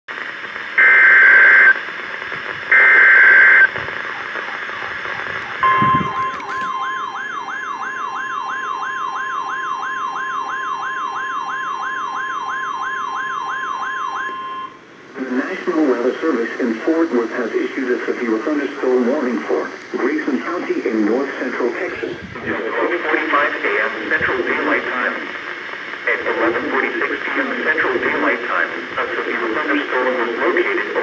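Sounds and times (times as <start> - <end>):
buzzy data bursts: 2.6 - 8.1
warbling siren alarm: 2.7 - 14.8
steady warning alarm tone: 2.7 - 14.9.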